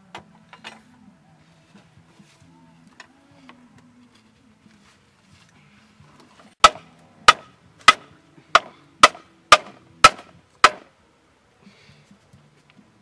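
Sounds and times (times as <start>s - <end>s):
chopping strikes on bamboo: 6.6s - 10.9s.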